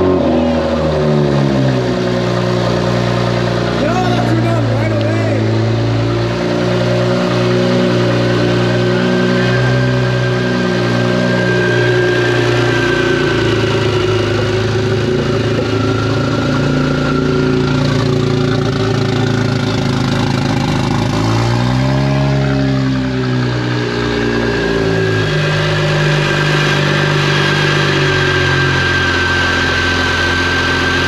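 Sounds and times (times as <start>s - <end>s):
car engine running: 0.0s - 31.0s.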